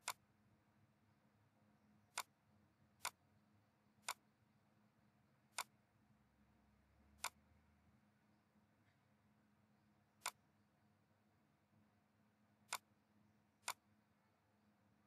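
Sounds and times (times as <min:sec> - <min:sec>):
computer mouse clicks: 0:00.0 - 0:00.2, 0:02.1 - 0:02.4, 0:03.0 - 0:03.2, 0:04.0 - 0:04.2, 0:05.5 - 0:05.7, 0:07.2 - 0:07.4, 0:10.2 - 0:10.4, 0:12.7 - 0:12.9, 0:13.6 - 0:13.8.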